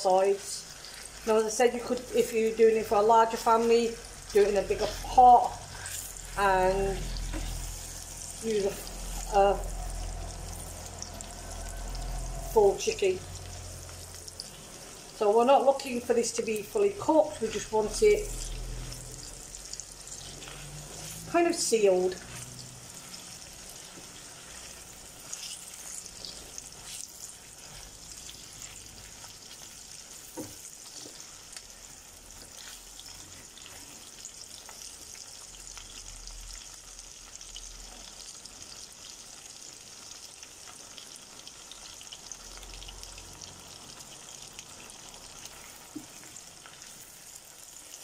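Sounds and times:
chicken and onions sizzling: 0.0 - 48.0.

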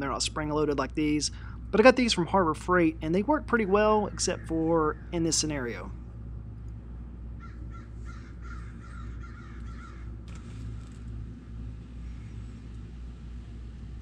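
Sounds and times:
steady low hum: 0.0 - 14.0
bird cawing: 7.4 - 10.9, 11.9 - 12.7.

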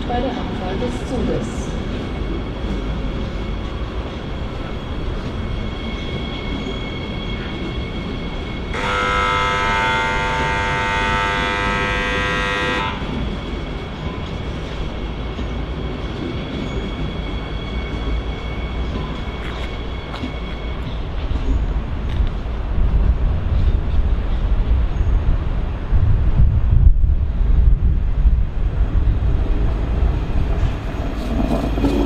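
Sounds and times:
low rumble of a train: 0.0 - 32.0
train horn blast: 8.7 - 13.2.

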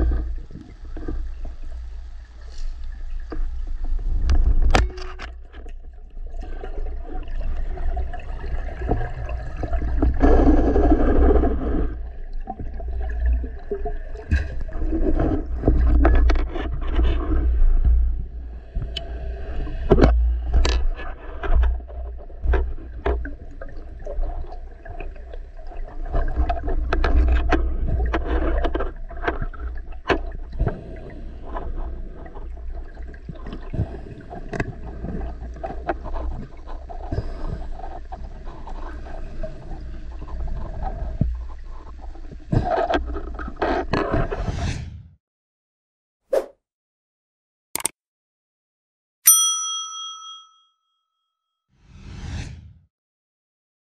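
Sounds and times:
underwater rumble and rushing water: 0.0 - 45.0
sharp underwater clicks and knocks: 4.2 - 5.8, 47.8 - 48.0.

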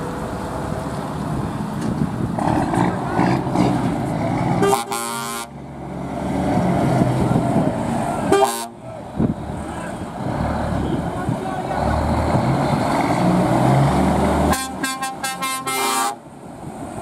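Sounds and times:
truck engines running: 0.0 - 17.0
truck horn blasts: 4.6 - 5.6, 8.3 - 8.8, 14.4 - 16.2.

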